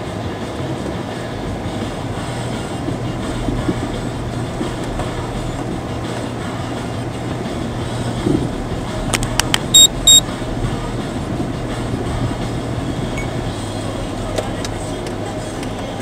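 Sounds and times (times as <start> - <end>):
car engine and road noise: 0.0 - 16.0
high electronic beeps: 9.6 - 10.2.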